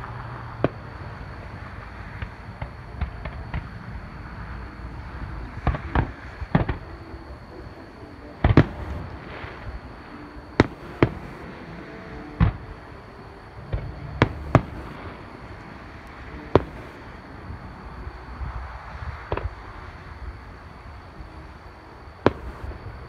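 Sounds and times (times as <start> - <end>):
fireworks bangs: 0.7 - 6.9, 8.4 - 12.9, 13.6 - 17.2, 22.2 - 22.8.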